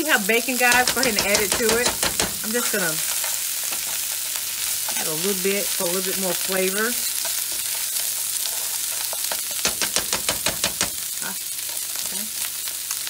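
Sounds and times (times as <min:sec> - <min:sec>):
beans sizzling in frying pan: 0:00.0 - 0:13.0
utensil clicking against pan: 0:00.7 - 0:02.5, 0:07.1 - 0:11.1.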